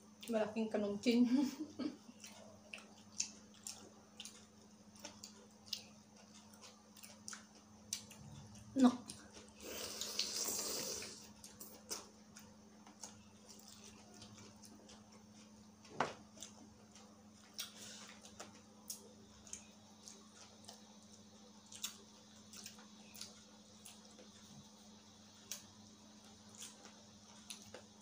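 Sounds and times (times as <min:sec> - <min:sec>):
faint steady hum: 0:00.0 - 0:28.0
people chewing: 0:01.4 - 0:28.0
soft clicks and wet smacks: 0:02.2 - 0:09.5.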